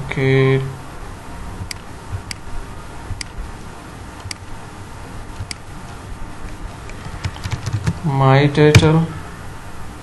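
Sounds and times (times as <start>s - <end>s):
faint low hum: 0.0s - 10.0s
computer mouse clicking: 1.6s - 2.4s, 4.2s - 4.4s, 5.4s - 8.0s.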